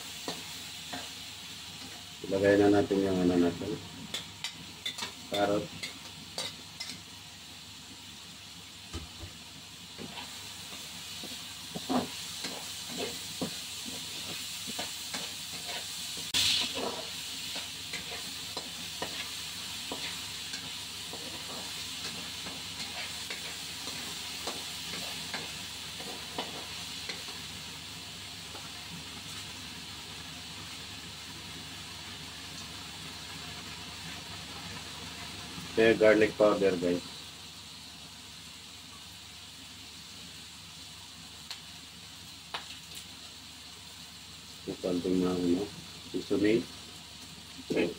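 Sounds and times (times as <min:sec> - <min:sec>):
food sizzling in a pan: 0:00.0 - 0:47.9
spatula scraping a pan: 0:11.7 - 0:27.5.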